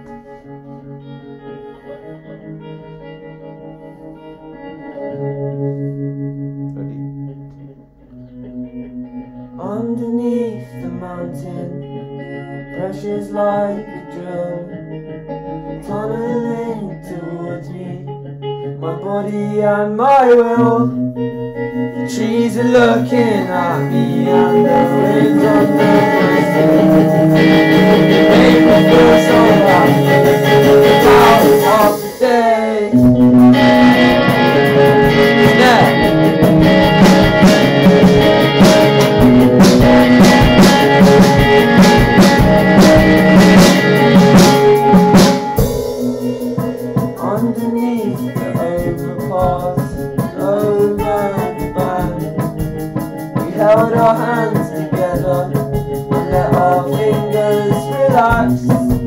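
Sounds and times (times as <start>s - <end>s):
strummed guitar: 0.0s - 59.0s
person singing wordlessly: 9.5s - 12.1s, 12.7s - 14.8s, 15.7s - 21.0s, 21.9s - 36.2s, 46.3s - 59.0s.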